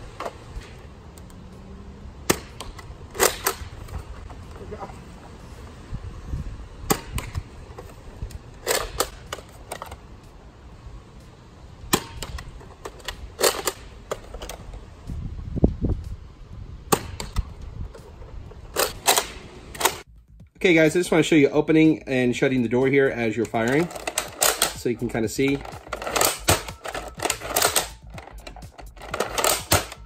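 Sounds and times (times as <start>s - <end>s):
dart blaster plastic clacks and pops: 2.3s - 4.0s, 23.5s - 30.0s.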